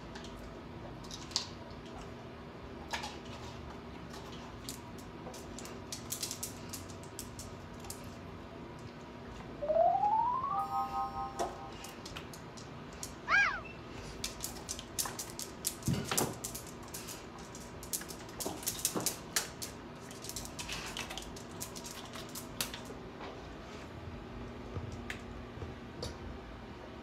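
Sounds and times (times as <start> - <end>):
falling whistle-like tone: 9.6 - 11.8.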